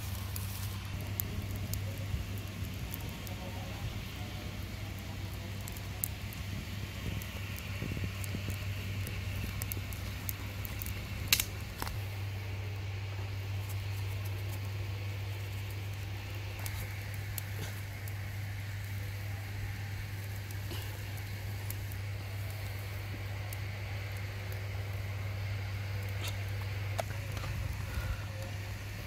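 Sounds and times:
low hum: 0.0 - 29.0
wood fire crackling: 0.0 - 29.0.

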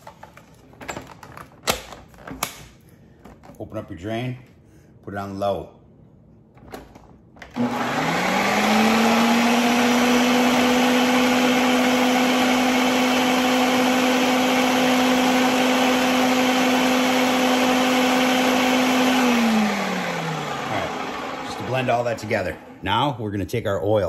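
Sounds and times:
blender motor whining: 7.5 - 22.8.

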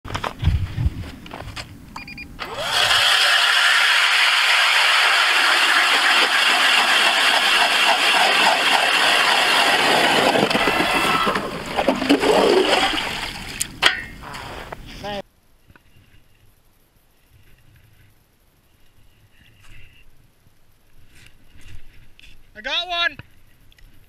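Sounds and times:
powered ice auger motor: 2.4 - 12.3
ice chips being cut: 2.7 - 11.4.

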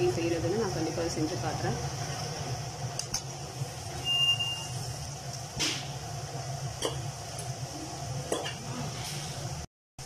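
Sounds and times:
fries sizzling in hot oil: 0.0 - 9.7
short high beep: 4.0 - 4.8.

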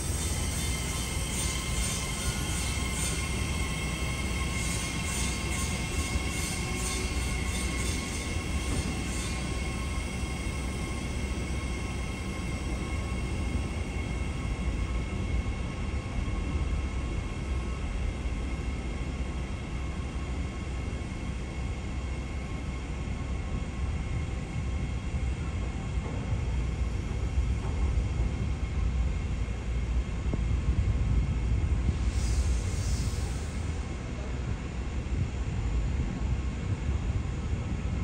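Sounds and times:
electric train rumble and whine: 0.0 - 38.0.

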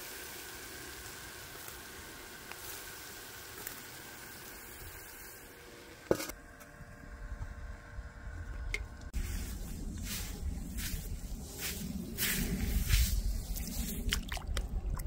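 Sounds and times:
chicken sizzling on grill: 0.0 - 14.1
wind rumble: 6.8 - 15.0.

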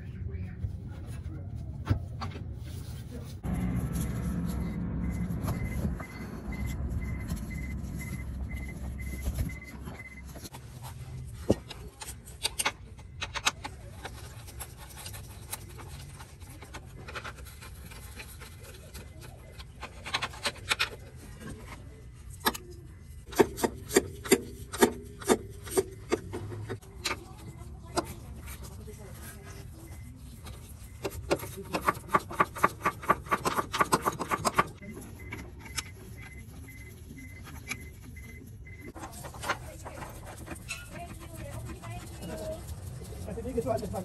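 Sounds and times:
low rumble: 3.4 - 10.2
tools scraping against metal: 29.9 - 44.0.

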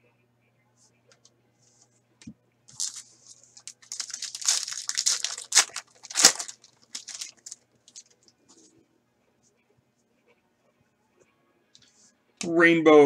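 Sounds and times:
foil wrapper tearing and crinkling: 2.7 - 8.2.

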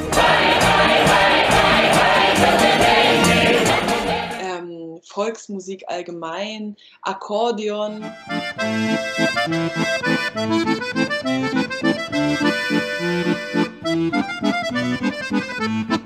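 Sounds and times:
button accordion folk tune: 0.0 - 4.4, 8.0 - 16.0.

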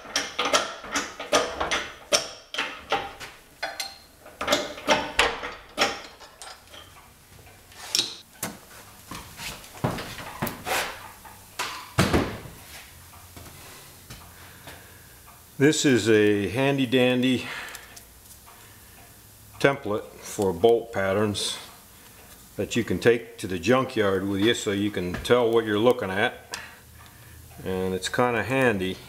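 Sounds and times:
metal clunks: 0.0 - 7.0.

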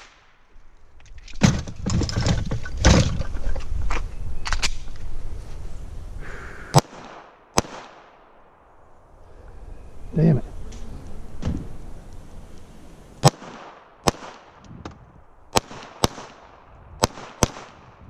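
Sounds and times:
gunshots: 6.7 - 8.2, 13.2 - 14.6, 15.5 - 18.0.

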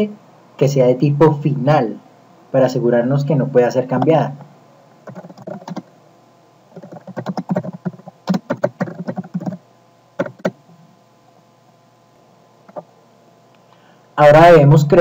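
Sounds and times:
typing on computer keyboard: 5.0 - 5.9, 6.8 - 9.6, 10.2 - 10.6.

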